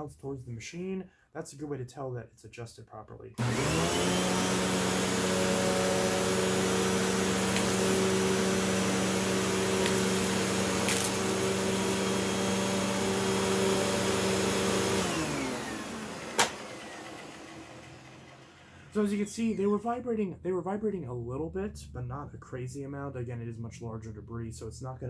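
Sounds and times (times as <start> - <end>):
upright vacuum running: 3.4 - 19.3
vacuum winding down: 3.4 - 19.6.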